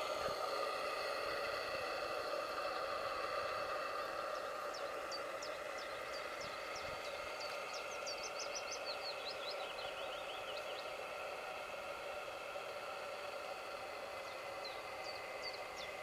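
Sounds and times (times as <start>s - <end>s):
model steam launch humming: 0.0s - 16.0s.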